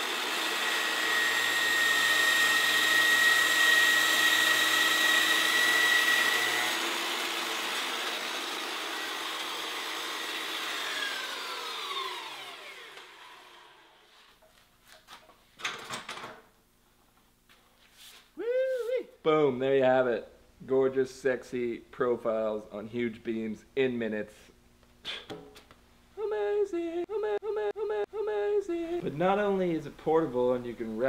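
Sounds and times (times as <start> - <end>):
bandsaw cutting timber: 0.0 - 14.1.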